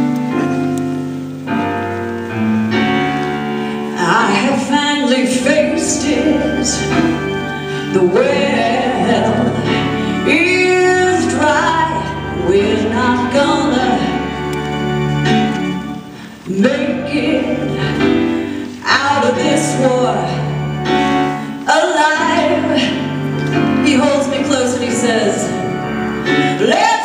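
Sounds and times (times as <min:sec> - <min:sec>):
woman singing into a microphone: 0:03.7 - 0:14.4, 0:16.5 - 0:27.0.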